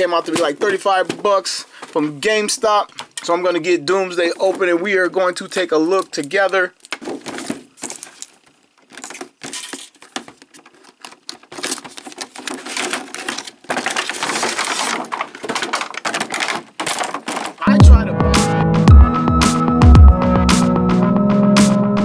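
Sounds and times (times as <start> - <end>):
packaging rustling and crinkling: 0.0 - 17.7
toy box being opened: 6.8 - 17.7.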